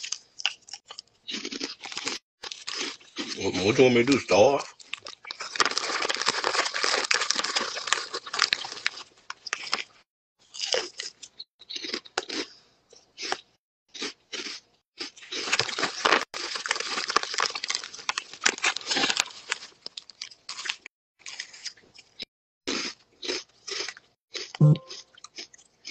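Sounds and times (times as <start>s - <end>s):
plastic chip bag crinkling: 0.0s - 3.8s, 4.7s - 11.1s, 15.2s - 22.1s
crunching and chewing chips: 0.0s - 25.9s.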